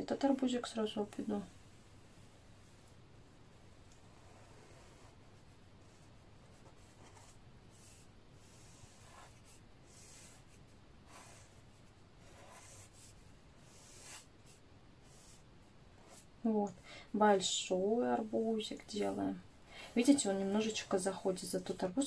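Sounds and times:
pen scratching on paper: 4.0s - 16.3s.

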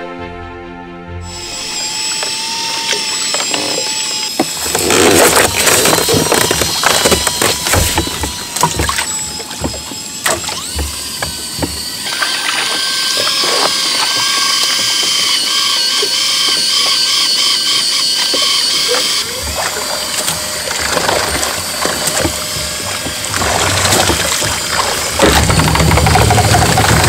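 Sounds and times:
fishing reel whirring: 1.2s - 27.0s
scattered knocks: 4.4s - 12.0s.

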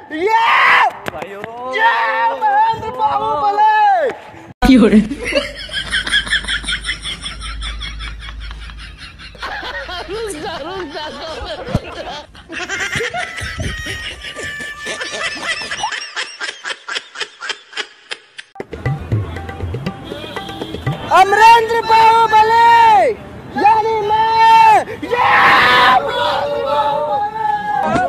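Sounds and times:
laughter in quick bursts: 5.1s - 18.6s.

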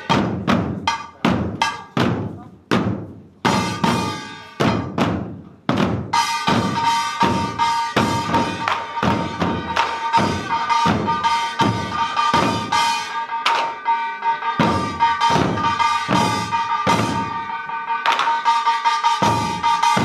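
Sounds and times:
barrel drums struck: 0.0s - 12.9s, 14.6s - 20.0s
ringing metal gong: 6.2s - 20.0s.

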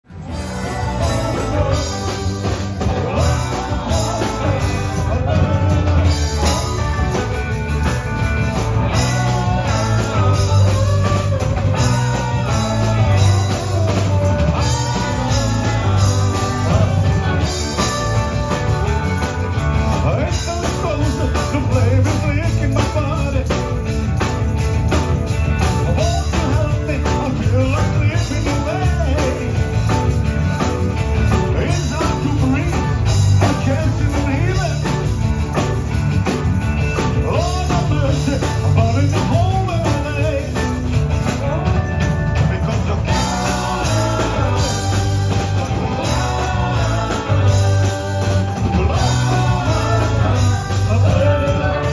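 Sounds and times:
drum kit: 0.0s - 51.9s
electric guitars: 0.0s - 51.9s
person singing: 0.2s - 7.6s, 8.8s - 23.8s, 42.4s - 51.9s.

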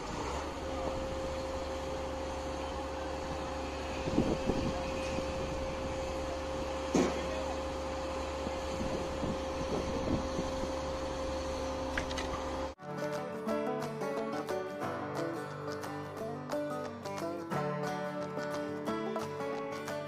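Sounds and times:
construction machinery drone: 0.0s - 12.8s
constant whine: 0.0s - 13.2s.

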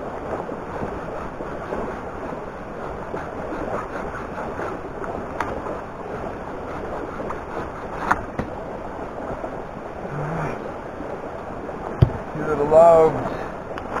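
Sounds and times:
steady rushing noise: 0.0s - 14.0s.

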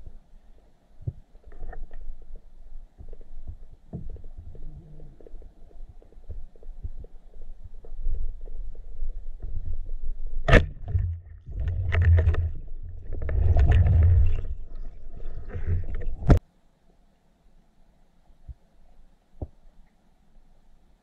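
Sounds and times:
muffled underwater rumbling: 1.0s - 16.4s.

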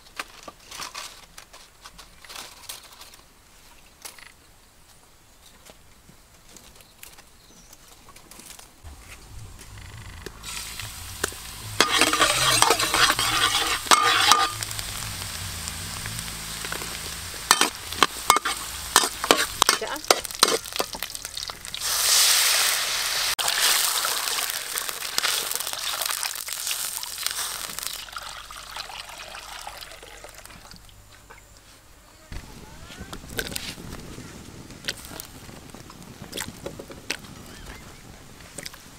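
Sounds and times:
metal spatula scraping wok: 8.9s - 21.1s
food sizzling in hot oil: 10.4s - 30.4s.

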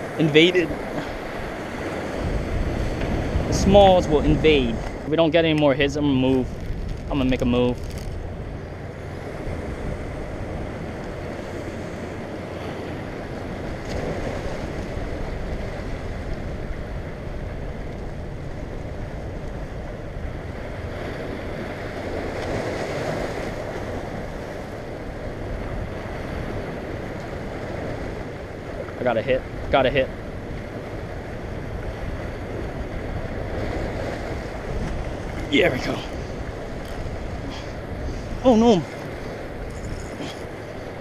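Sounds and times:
wind noise on microphone: 0.0s - 28.8s, 29.5s - 41.0s
surf breaking against rocks: 32.0s - 41.0s.

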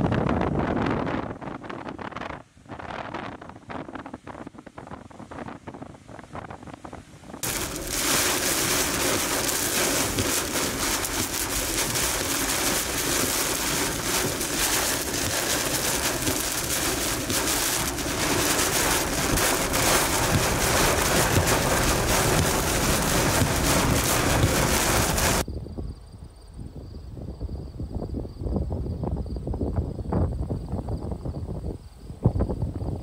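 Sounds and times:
rain and hail on a car roof: 7.4s - 25.4s.

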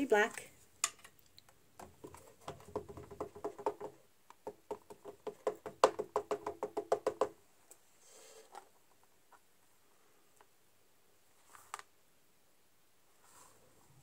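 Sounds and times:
ink pad tapping rubber stamp: 2.5s - 7.3s.

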